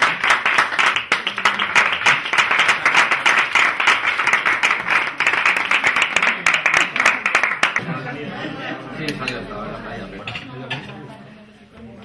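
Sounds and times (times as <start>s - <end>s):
people applauding: 0.0s - 8.0s.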